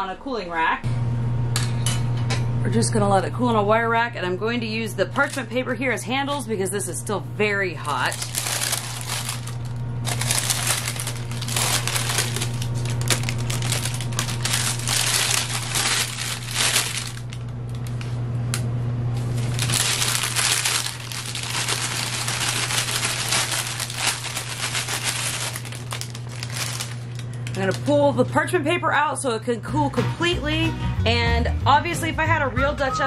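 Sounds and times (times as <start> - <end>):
steady low hum: 0.0 - 30.6
parchment paper crinkling: 7.8 - 18.2, 19.2 - 28.2.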